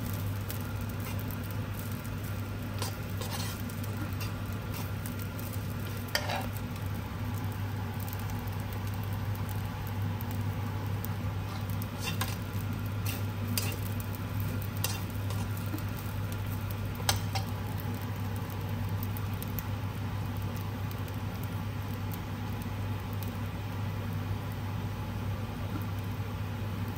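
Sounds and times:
rice sizzling in a wok: 0:00.0 - 0:26.9
steady low hum: 0:00.0 - 0:26.9
spatula stirring and scraping: 0:00.1 - 0:06.6, 0:11.4 - 0:17.6.

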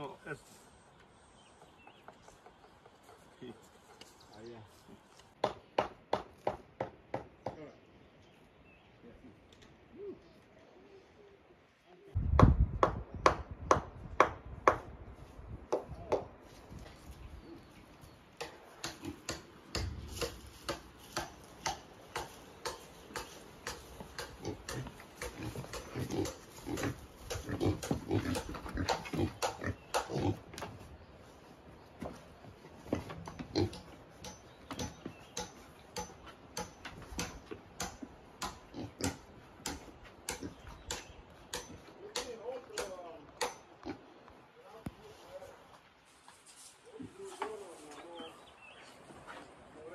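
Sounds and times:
pig grunting: 0:24.3 - 0:30.5.

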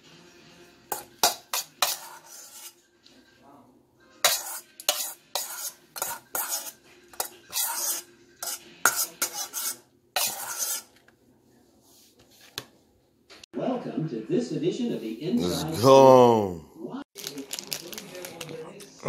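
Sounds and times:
metal spoon scraping steel bowl: 0:00.9 - 0:02.8, 0:04.2 - 0:11.0.

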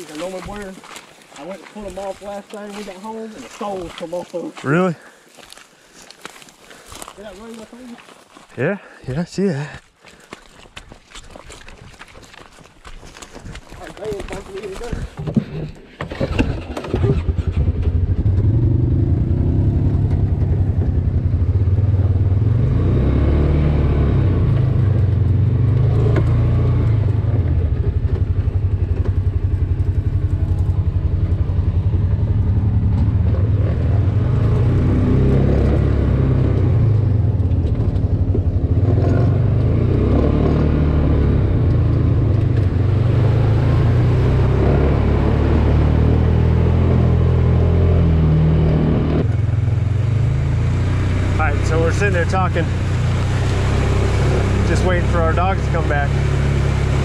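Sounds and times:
utility vehicle engine rumble: 0:13.4 - 0:57.0.

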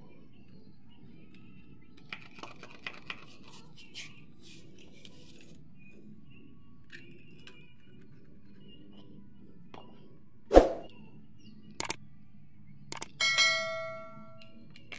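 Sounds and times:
loud swoosh: 0:10.5 - 0:10.9
mouse clicks: 0:11.8 - 0:12.0, 0:12.9 - 0:13.1.

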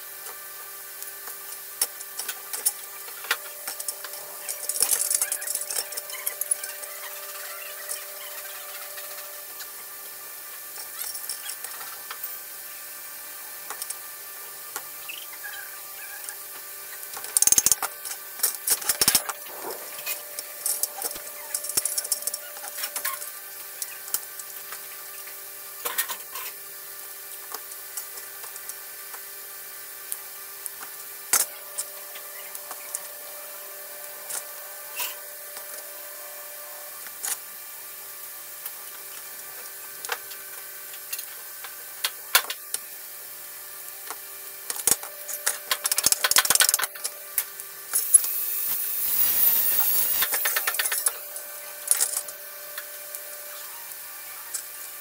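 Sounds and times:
steady hum: 0:18.4 - 0:23.0, 0:47.3 - 0:52.7
tool scraping: 0:19.3 - 0:20.3, 0:47.9 - 0:51.2.

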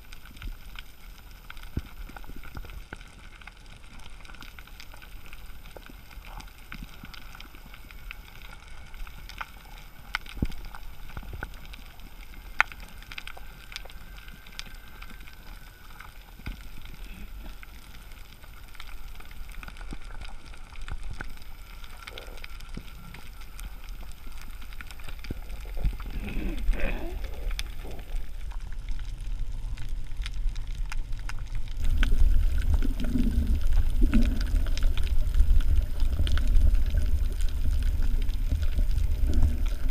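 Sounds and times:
low rumble of moving water: 0:00.0 - 0:39.9
bubbles gurgling: 0:20.9 - 0:39.9.

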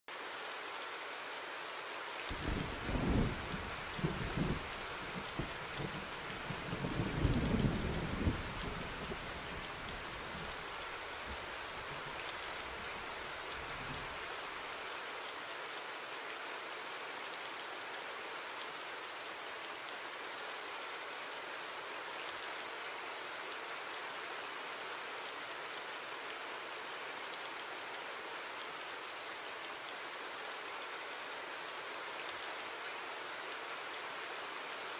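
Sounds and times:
heavy rain: 0:00.1 - 0:34.9
low rolls of thunder: 0:02.3 - 0:09.7.

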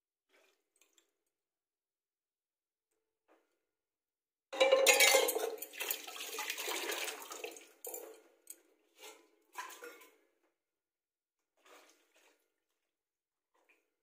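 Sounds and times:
tap water gushing into metal pot: 0:04.8 - 0:08.3.

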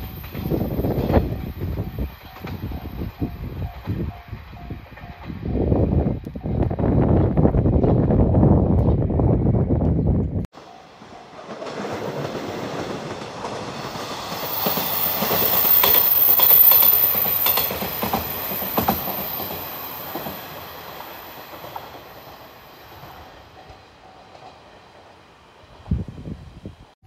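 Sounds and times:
wheels clicking over rail joints: 0:10.6 - 0:24.8
diesel train passing: 0:10.6 - 0:27.0
thin high-pitched whine: 0:14.3 - 0:22.8.

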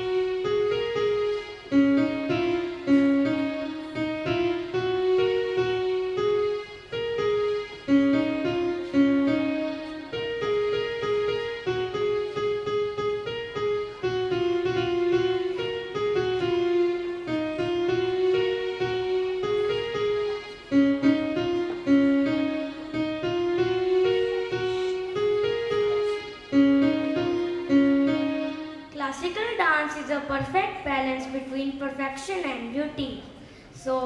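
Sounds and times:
electronic keyboard melody: 0:00.0 - 0:30.5.

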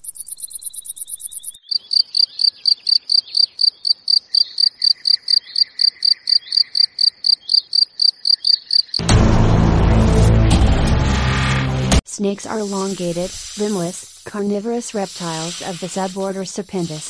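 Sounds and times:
crickets chirping: 0:00.0 - 0:09.0.

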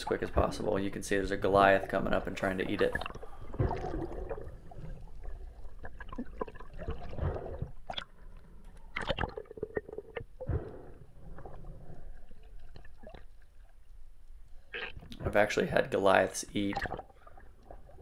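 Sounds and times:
muffled underwater rush: 0:00.0 - 0:08.5.

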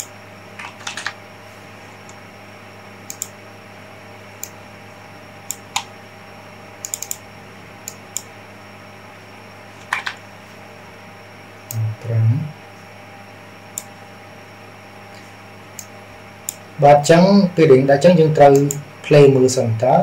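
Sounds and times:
low electrical hum: 0:00.0 - 0:20.0
mouse clicks: 0:03.1 - 0:03.4, 0:06.8 - 0:07.2.

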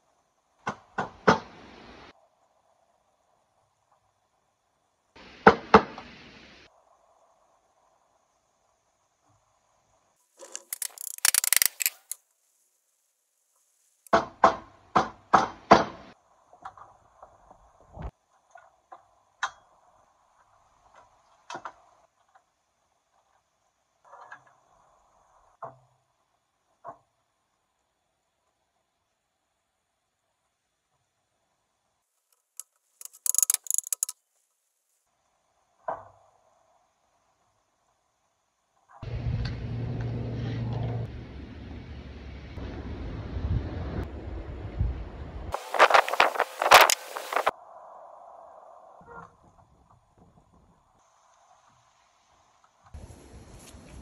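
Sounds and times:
metallic clamp clicking and rattling: 0:10.4 - 0:12.2, 0:32.4 - 0:34.2.

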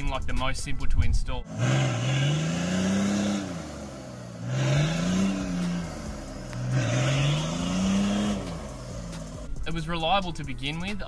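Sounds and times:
engine revving: 0:01.4 - 0:09.6.

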